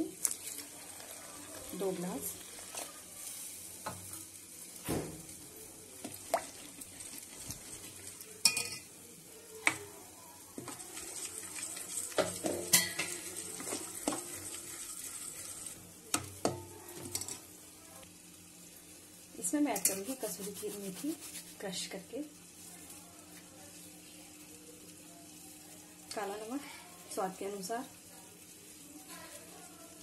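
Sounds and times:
wet stirring hiss: 0.0s - 15.8s, 18.6s - 30.0s
spoon clinking against steel bowl: 8.4s - 8.9s.

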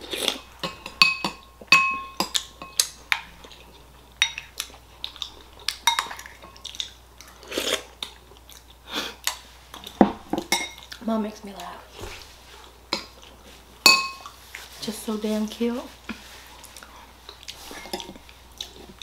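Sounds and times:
spoon clinking against ceramic bowl: 0.6s - 2.8s, 13.9s - 14.2s.

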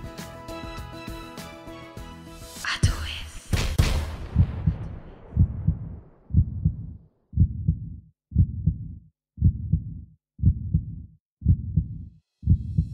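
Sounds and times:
low thumping beat: 4.4s - 12.9s.

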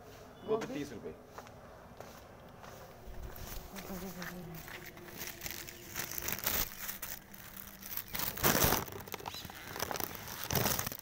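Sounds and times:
plastic bags crinkling: 3.2s - 11.0s.

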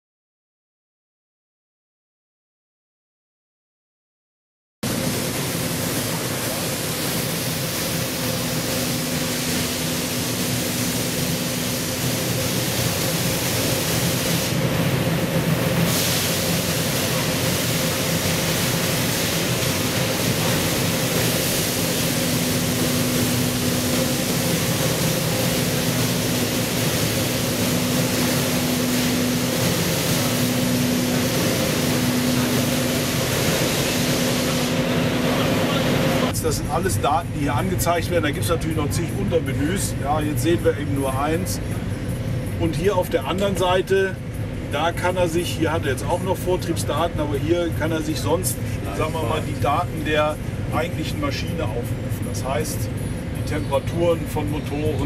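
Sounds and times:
loud rushing machinery din: 4.8s - 36.4s.

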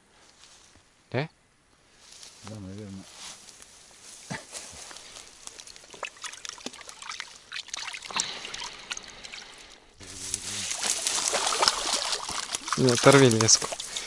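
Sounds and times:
fish splashing in water: 5.3s - 14.0s.

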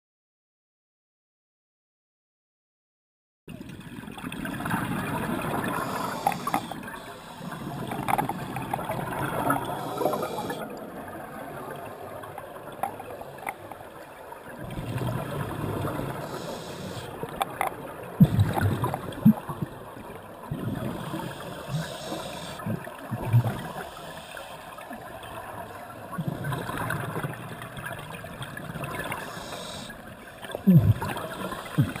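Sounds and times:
scuba regulator bubbling exhalations: 4.6s - 10.7s, 14.7s - 19.8s, 20.5s - 24.2s, 28.8s - 32.0s
faint hiss of inhalation: 5.7s - 7.8s, 9.5s - 10.6s, 16.2s - 17.2s, 21.0s - 22.7s, 23.6s - 24.7s, 29.1s - 30.0s.

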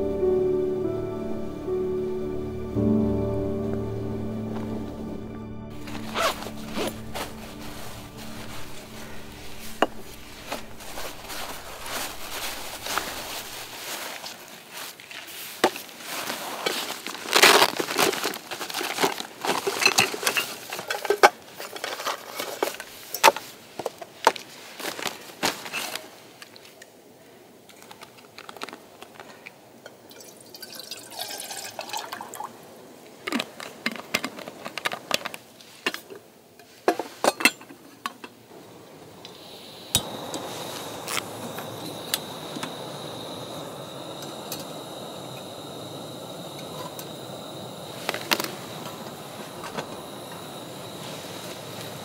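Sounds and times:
paper bag rustling: 4.4s - 26.4s, 27.8s - 29.4s
gas stove burner hissing: 5.7s - 13.9s, 38.5s - 52.0s
water pouring into kettle: 30.1s - 32.6s
stove ignition click: 39.2s - 50.6s.

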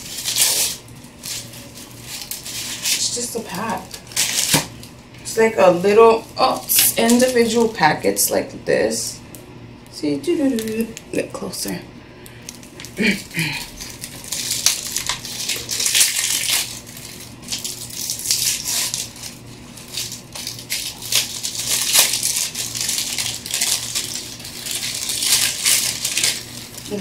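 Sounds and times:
packets rustling and crinkling: 0.0s - 5.0s, 12.4s - 27.0s.

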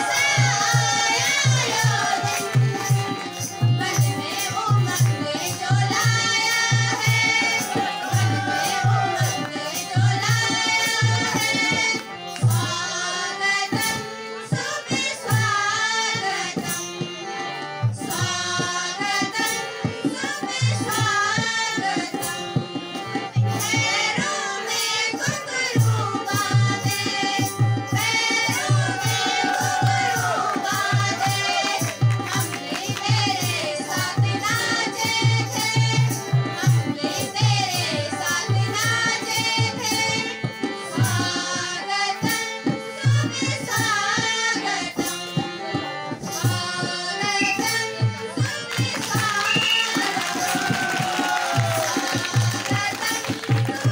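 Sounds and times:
steady drum beat: 0.0s - 11.9s, 25.8s - 41.4s.

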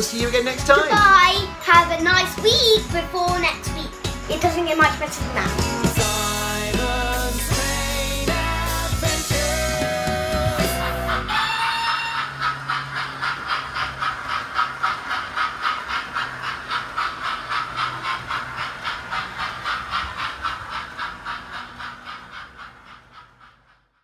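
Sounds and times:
model steam locomotive beat: 0.0s - 24.0s.

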